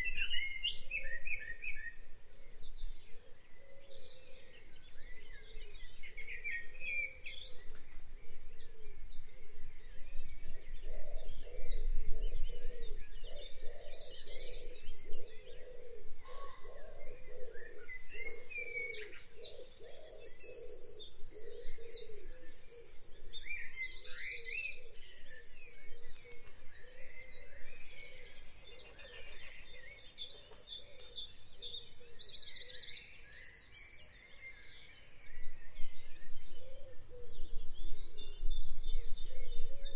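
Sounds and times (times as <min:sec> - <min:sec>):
songbirds singing: 0:00.0 - 0:39.9.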